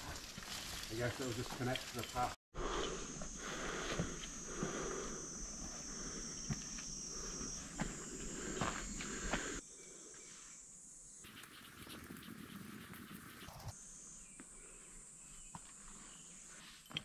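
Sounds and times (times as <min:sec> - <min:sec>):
footsteps on dirt trail: 0:00.0 - 0:02.2, 0:03.0 - 0:09.6
insects droning: 0:00.0 - 0:17.0.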